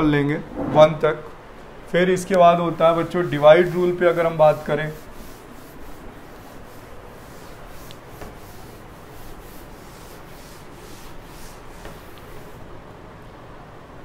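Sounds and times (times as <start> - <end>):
duster rubbing a chalkboard: 2.5 - 12.8.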